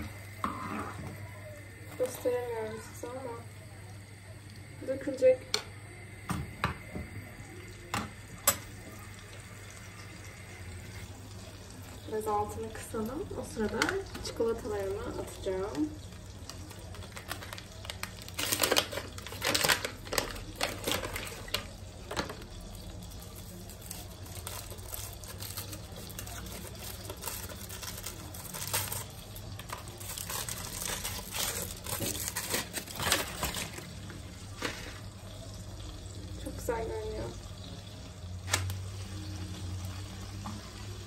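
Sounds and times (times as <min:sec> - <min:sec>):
wrappers crinkling: 0:16.4 - 0:21.8, 0:23.2 - 0:34.0.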